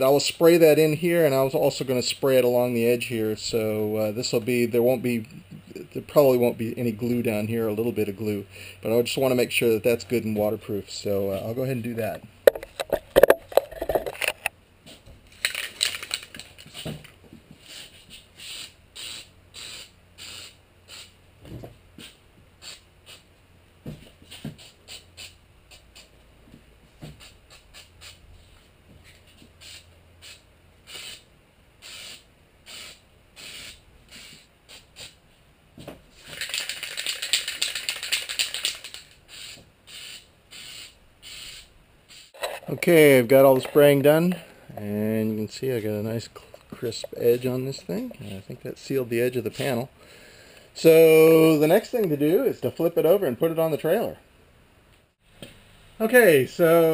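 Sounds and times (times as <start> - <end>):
aerosol can spraying: 17.6 - 21.1, 22.6 - 23.2, 24.3 - 26.1, 27.2 - 28.2, 29.6 - 31.2, 31.8 - 35.2, 36.3 - 42.4.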